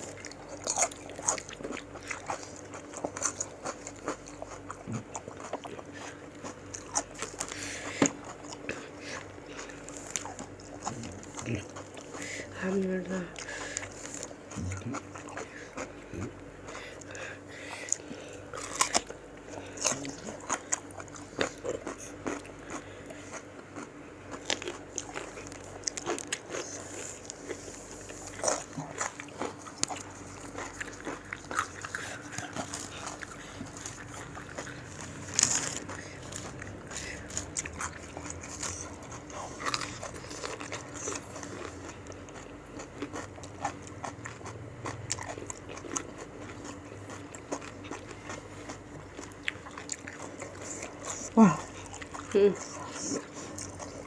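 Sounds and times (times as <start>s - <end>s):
people crunching and chewing fruit: 0.0s - 54.0s.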